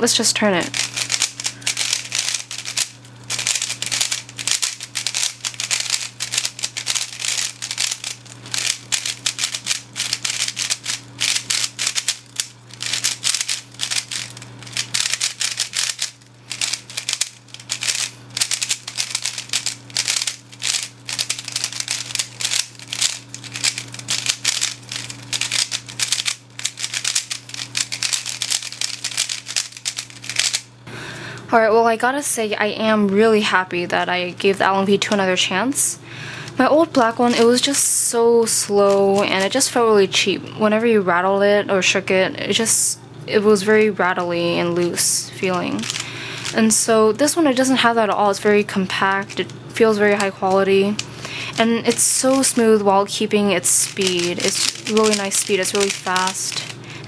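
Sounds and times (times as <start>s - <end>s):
steady low hum: 0.0s - 57.0s
plastic puzzle cube clicking: 0.8s - 30.6s, 54.3s - 56.4s.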